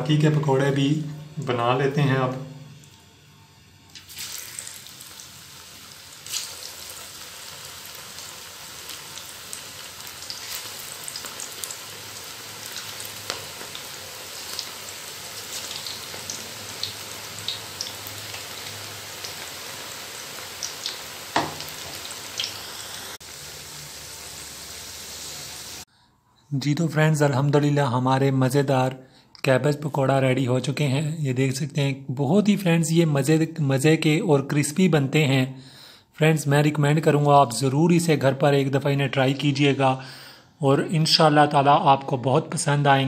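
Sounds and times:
fritters deep-frying in oil: 4.0s - 25.9s.

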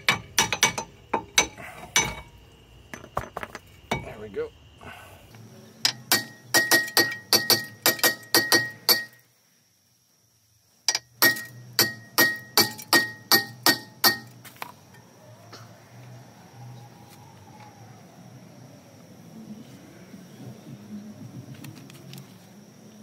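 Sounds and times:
hammer blows on ringing metal rotor: 10.9s - 14.4s.

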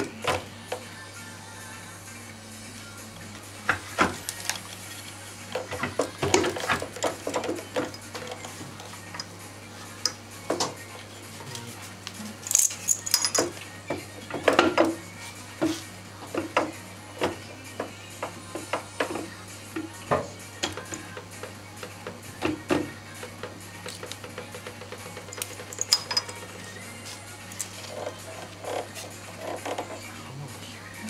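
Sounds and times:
metal clinks and knocks: 12.4s - 13.5s, 25.3s - 26.4s.

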